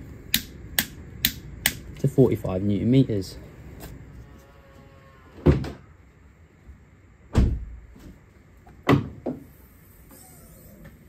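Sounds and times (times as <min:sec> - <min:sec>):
heavy thumps from car body: 0:07.3 - 0:07.8.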